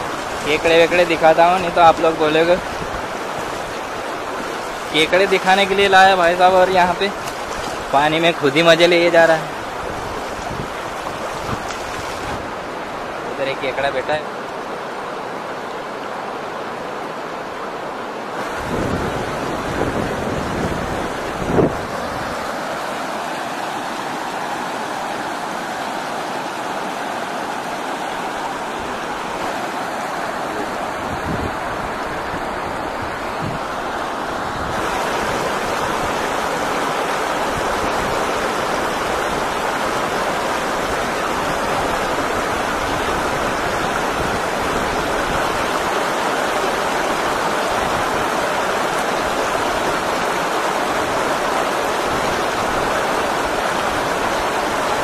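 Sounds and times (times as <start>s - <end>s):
river rapids rushing over rocks: 0.0s - 55.0s.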